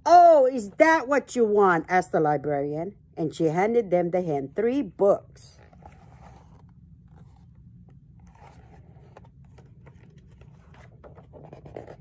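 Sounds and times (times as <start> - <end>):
low background hum: 0.0 - 12.0
book pages rustling: 5.6 - 12.0.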